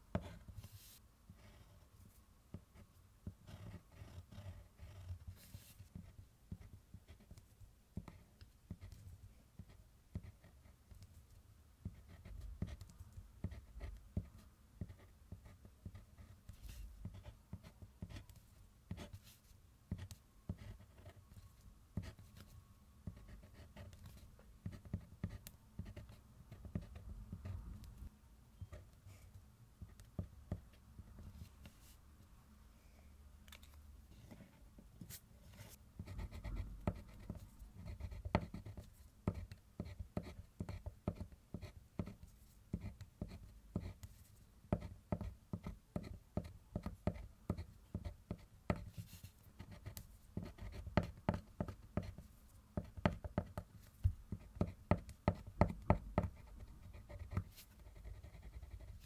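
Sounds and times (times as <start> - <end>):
colored pencil scratching on paper: 0.1 - 7.4, 34.2 - 59.0.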